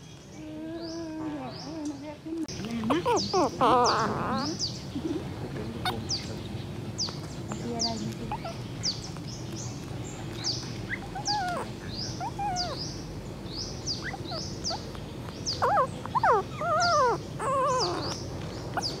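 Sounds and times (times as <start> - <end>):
puppy whimpering and whining: 2.8 - 4.6, 8.3 - 8.6, 10.8 - 13.0, 14.0 - 14.9, 15.5 - 19.0.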